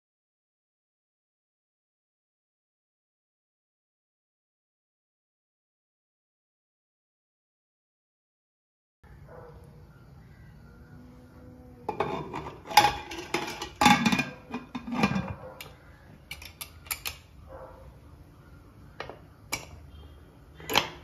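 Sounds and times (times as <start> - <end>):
metal lid clanking and scraping: 11.9 - 15.7, 16.3 - 17.3, 19.0 - 19.8, 20.6 - 21.0.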